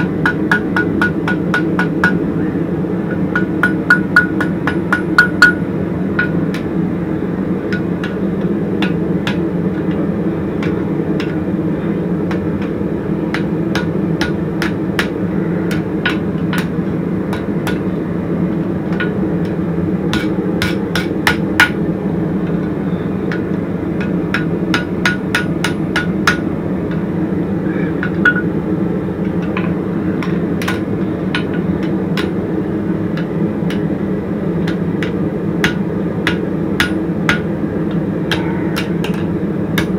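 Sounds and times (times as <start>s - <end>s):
hammer striking hot metal: 0.0s - 2.2s, 3.1s - 6.7s, 7.7s - 10.0s, 10.6s - 11.5s, 12.3s - 17.9s, 18.9s - 21.8s, 22.6s - 27.0s, 28.0s - 28.6s, 29.4s - 32.4s, 34.6s - 39.9s
low hum: 0.0s - 39.9s.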